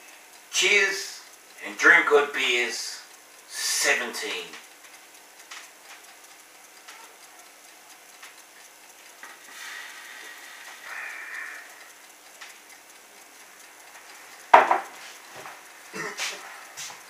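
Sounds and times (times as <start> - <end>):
soft breathy hiss: 9.3 - 11.9
glass mug knocked on table: 14.6 - 14.8
faint knocks: 14.6 - 15.5.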